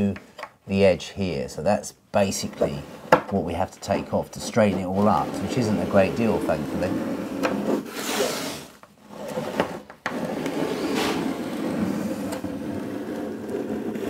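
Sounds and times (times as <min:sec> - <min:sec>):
pencil scratching on wood: 0:04.4 - 0:14.0.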